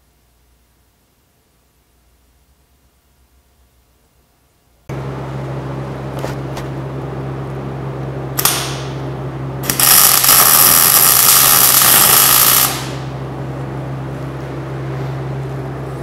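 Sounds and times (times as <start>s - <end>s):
steady low hum: 0.0s - 16.0s
welder arc crackling: 8.4s - 13.2s.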